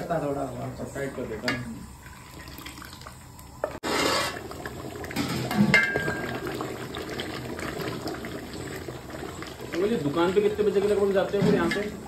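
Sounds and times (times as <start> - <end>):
ladle clinking on pot: 5.3 - 6.4.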